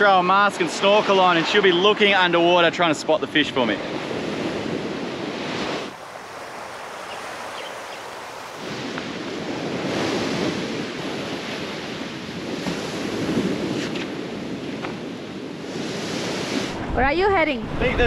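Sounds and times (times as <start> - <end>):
sea waves washing in: 0.0 - 18.0
wind on microphone: 3.8 - 18.0.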